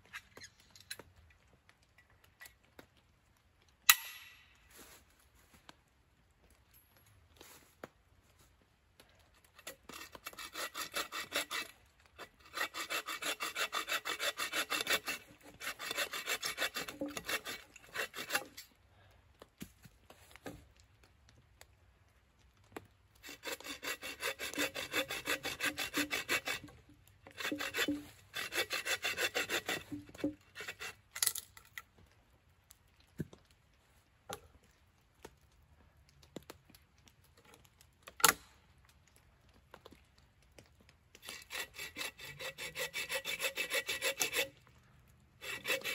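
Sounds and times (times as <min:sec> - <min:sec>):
hand saw cutting wood: 0:09.5 - 0:18.6, 0:23.2 - 0:31.4, 0:41.2 - 0:44.6, 0:45.4 - 0:45.9.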